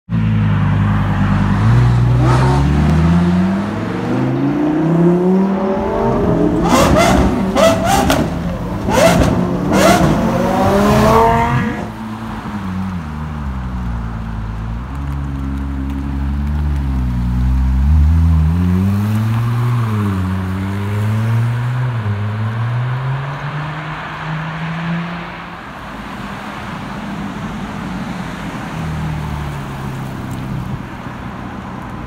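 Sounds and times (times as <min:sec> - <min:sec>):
car engine accelerating: 0:01.2 - 0:12.0
engine revving with sharp cracks: 0:06.5 - 0:11.9.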